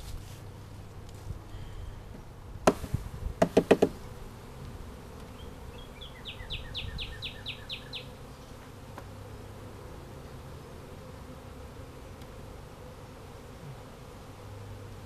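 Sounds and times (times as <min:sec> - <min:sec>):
honeybees buzzing: 0:00.0 - 0:15.0
wooden frame knocks: 0:02.7 - 0:04.0.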